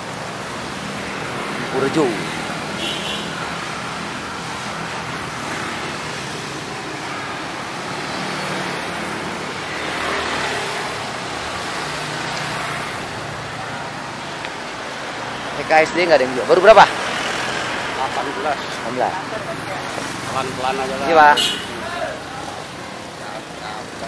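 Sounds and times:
city traffic: 0.0 - 24.0.

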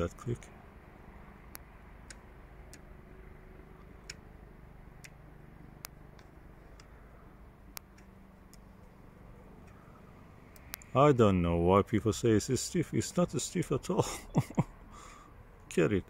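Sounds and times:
eyepiece ring clicking: 10.5 - 10.9.

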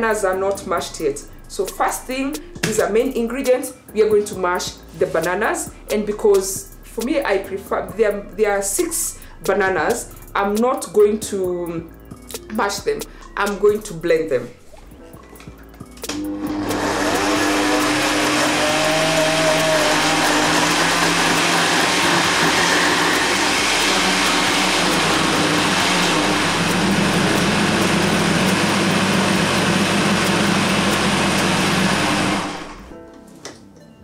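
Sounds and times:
blender motor running: 16.1 - 32.9.

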